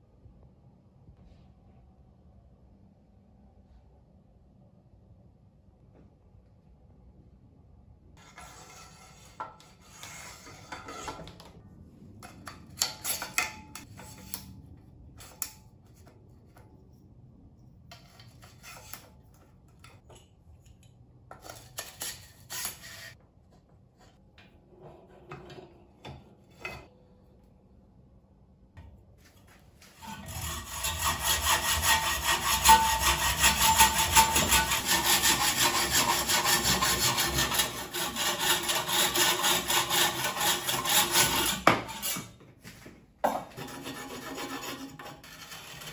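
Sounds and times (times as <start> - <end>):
hacksaw cutting metal tube: 30.0 - 42.3.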